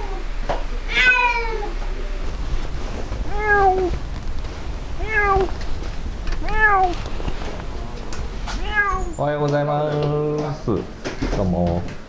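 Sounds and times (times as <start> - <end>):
cat meowing: 0.9 - 1.8, 3.2 - 4.0, 5.0 - 5.6, 6.4 - 7.0, 8.5 - 9.2.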